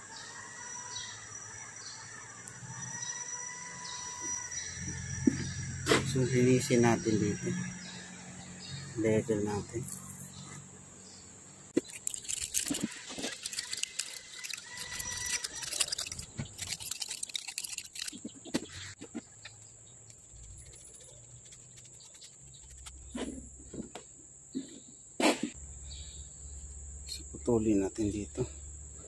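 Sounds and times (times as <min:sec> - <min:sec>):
crickets chirping: 0:00.0 - 0:29.0
file scraping metal: 0:11.8 - 0:19.0.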